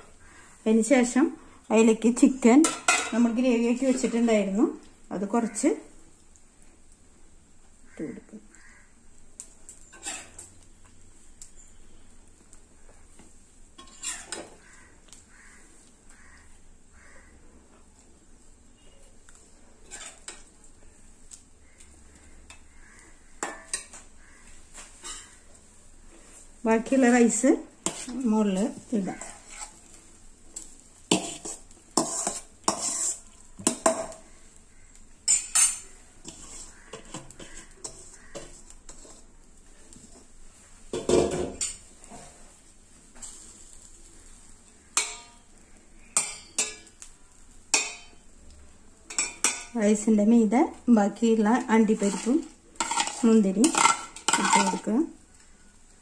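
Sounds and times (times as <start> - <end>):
spoon scraping a steel bowl: 9.8 - 10.5, 13.8 - 14.5, 19.8 - 20.5, 27.8 - 29.9, 31.1 - 34.2, 35.3 - 39.3, 51.8 - 54.9
metal spoon clinking on pot: 35.2 - 38.6, 45.0 - 45.5, 46.2 - 47.0, 47.7 - 48.2, 49.1 - 49.8, 52.0 - 54.9.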